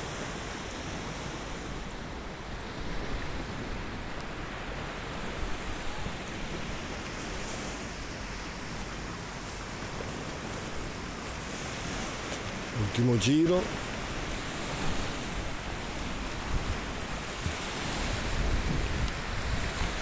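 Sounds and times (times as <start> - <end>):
wind noise on microphone: 0.0 - 13.0, 13.7 - 20.0
surf washing on shore: 0.0 - 20.0.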